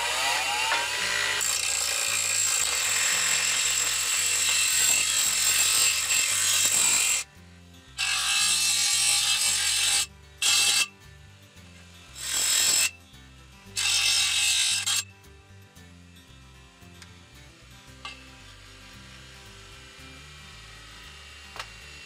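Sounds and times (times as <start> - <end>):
grinder motor whine: 0.0 - 5.1
bench grinder grinding metal: 0.0 - 15.2, 17.8 - 22.0.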